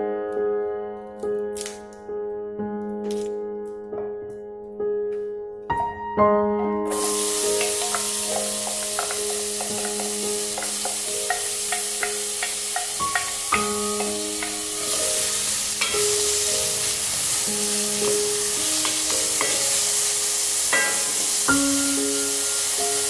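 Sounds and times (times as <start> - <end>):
onion sizzling in a pot: 6.9 - 23.0
wooden spoon scraping and tapping pot: 7.6 - 14.8.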